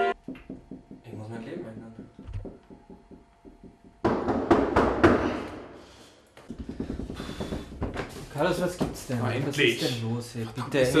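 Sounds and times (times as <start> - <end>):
heavy banging on a door: 0.2 - 5.6, 6.5 - 9.0.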